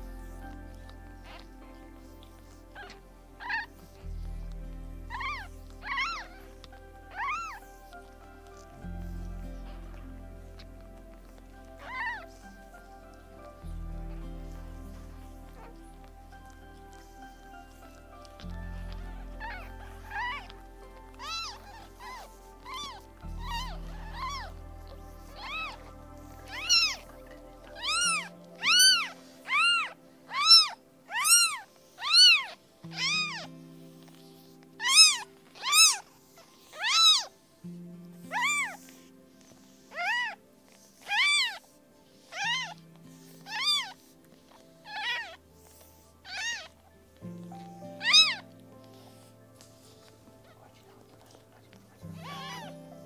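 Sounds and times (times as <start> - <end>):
soft background music: 0.0 - 53.0
kitten mewing: 5.1 - 6.4, 7.1 - 7.6, 19.3 - 24.6, 26.5 - 33.5, 34.8 - 36.0, 36.8 - 37.3, 38.3 - 38.8, 41.1 - 41.6, 42.3 - 42.8, 43.5 - 44.0, 44.8 - 45.4, 46.3 - 46.7, 48.0 - 48.5, 52.2 - 52.8.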